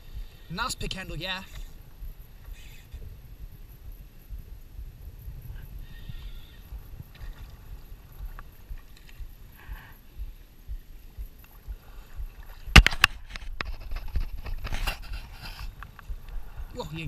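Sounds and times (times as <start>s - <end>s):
low wind rumble: 0.0s - 17.0s
water sloshing: 6.7s - 9.5s.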